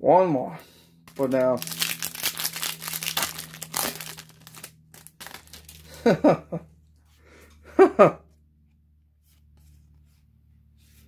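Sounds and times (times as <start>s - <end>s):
foil wrapper crinkling: 1.1s - 6.1s.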